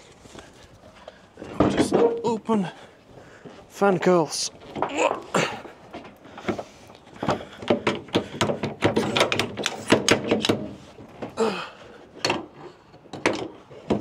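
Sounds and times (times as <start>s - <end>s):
latches clicking and knocking: 7.6s - 11.3s, 12.2s - 14.0s.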